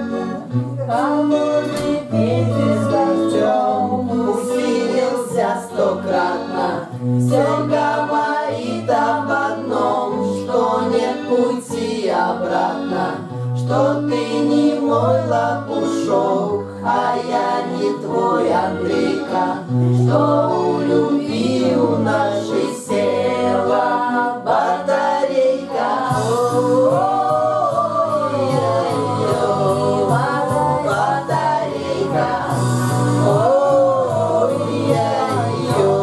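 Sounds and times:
voices singing in harmony: 0:00.0 - 0:36.0
held bass notes: 0:25.8 - 0:36.0.

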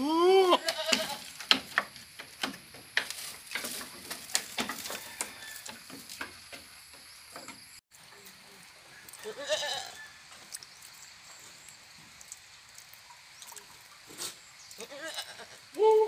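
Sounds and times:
goat bleating: 0:00.0 - 0:01.3, 0:09.2 - 0:10.0, 0:14.8 - 0:15.6
goats chewing dry leafy branches: 0:00.6 - 0:07.0.

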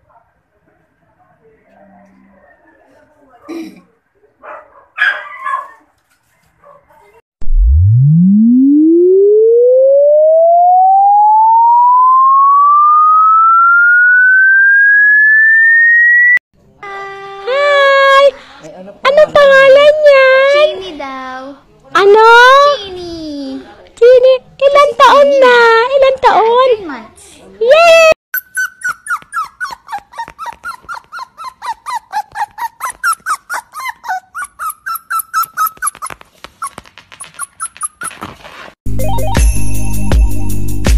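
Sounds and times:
rising electronic tone: 0:07.4 - 0:16.4
dog whimpering: 0:28.4 - 0:38.3.

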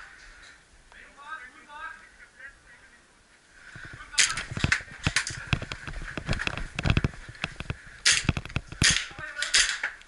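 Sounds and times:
airsoft gun shots clacking: 0:08.0 - 0:10.0.

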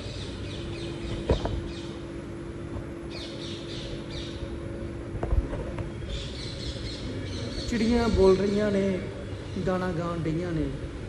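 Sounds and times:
birds chirping: 0:00.0 - 0:11.0
steady low hum: 0:00.0 - 0:11.0.

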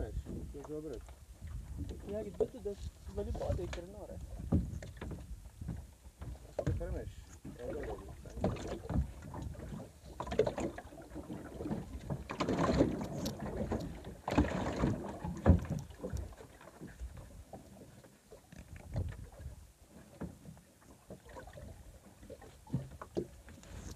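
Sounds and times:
water splashing at boat side: 0:00.0 - 0:23.9
thumps against boat: 0:00.1 - 0:10.8, 0:11.6 - 0:16.4.

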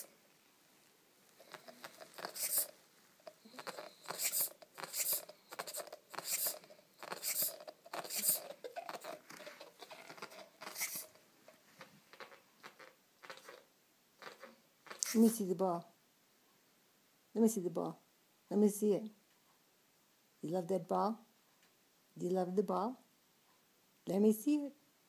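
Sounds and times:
dog chewing a rubber ball: 0:01.4 - 0:15.2.

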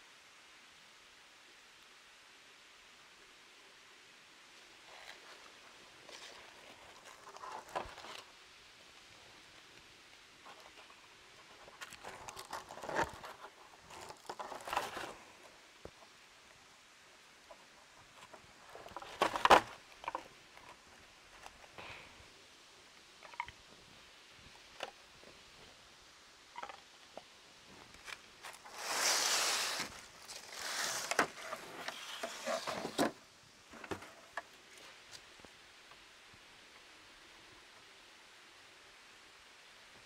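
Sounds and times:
bamboo rustling and scraping: 0:04.6 - 0:09.7, 0:10.4 - 0:16.3, 0:17.2 - 0:22.2, 0:26.5 - 0:35.4.

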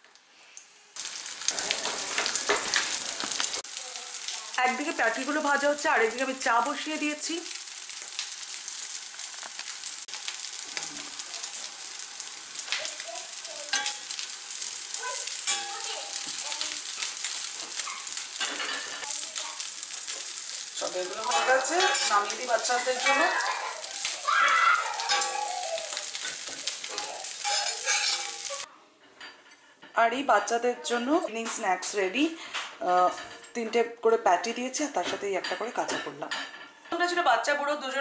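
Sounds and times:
small crackles: 0:00.0 - 0:05.2, 0:07.4 - 0:28.7
patties sizzling in oil: 0:00.0 - 0:28.7
spatula scraping pan: 0:27.4 - 0:28.7.

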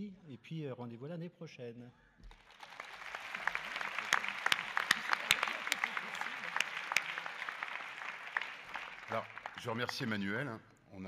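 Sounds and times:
audience applauding: 0:02.3 - 0:10.5.

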